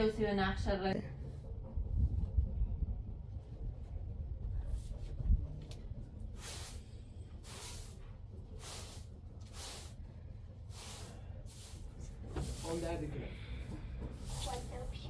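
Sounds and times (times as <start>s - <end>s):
broom swishing across carpet: 6.3s - 15.0s.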